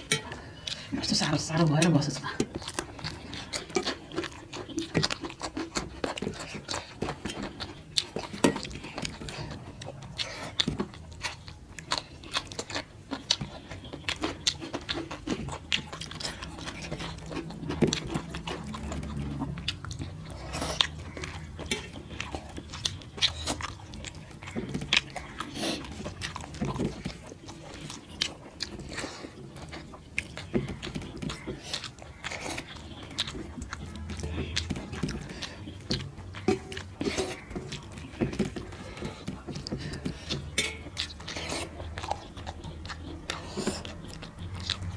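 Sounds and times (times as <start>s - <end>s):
wet chewing and lip-smacking: 0.0s - 44.9s.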